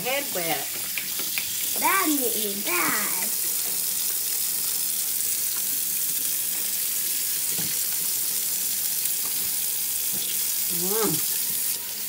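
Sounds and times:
faucet water splashing into sink: 0.0s - 12.0s.

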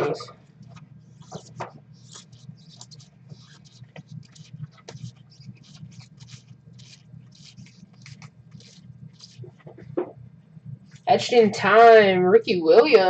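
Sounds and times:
low steady hum: 0.0s - 13.0s
trading cards swishing: 0.7s - 9.6s.

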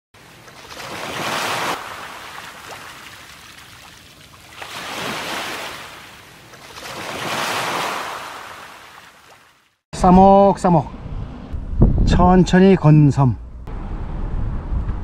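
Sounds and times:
ocean waves breaking: 0.2s - 9.8s.

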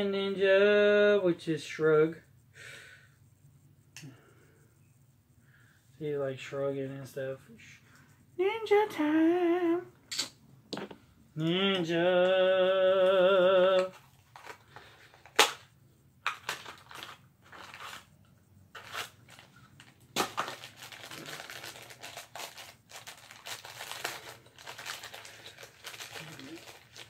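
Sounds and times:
man singing a long note: 11.4s - 13.9s
wrapper crinkling and tearing: 16.2s - 18.1s, 18.8s - 27.0s.

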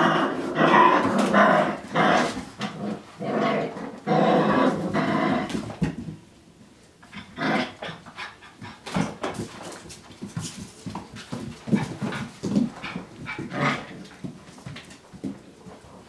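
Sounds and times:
puppy noises: 7.0s - 16.0s
scuffling and knocks: 8.8s - 16.0s.

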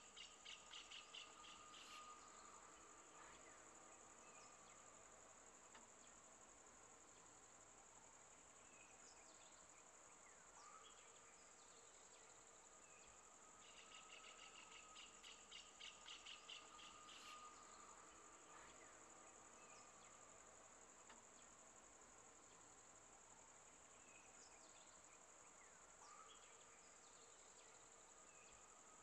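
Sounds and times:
high-pitched insect drone: 10.9s - 20.2s.

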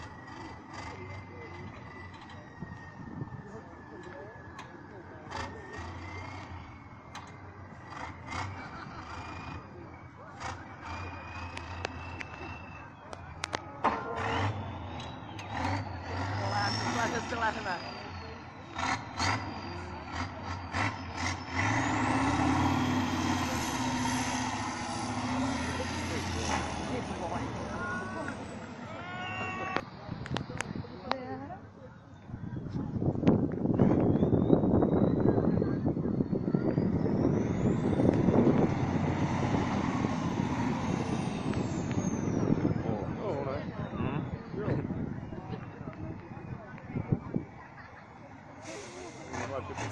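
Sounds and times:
diesel truck engine revving: 0.0s - 49.9s
short hisses: 48.6s - 49.4s.

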